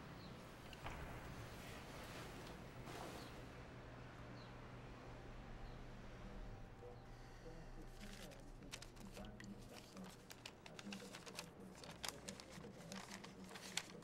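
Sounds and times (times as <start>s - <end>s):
low steady hum: 0.0s - 14.0s
crisp crackles: 7.9s - 14.0s
paper envelope rustling: 7.9s - 14.0s.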